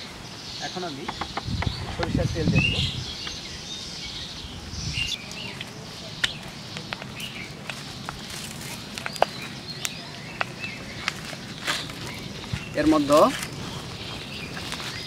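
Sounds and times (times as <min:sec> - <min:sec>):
birds chirping: 0:00.0 - 0:15.0
wood fire crackling: 0:05.2 - 0:15.0.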